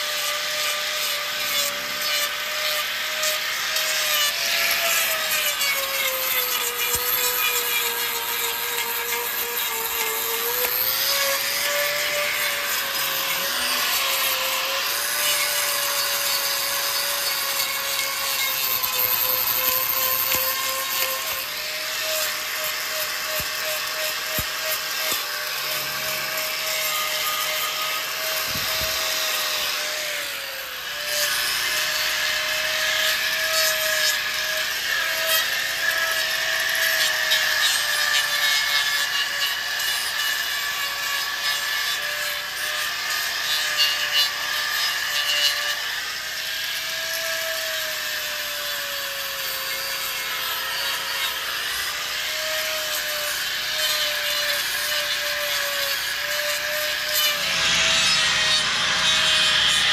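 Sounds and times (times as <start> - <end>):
angle grinder grinding hoof: 0.0 - 59.9.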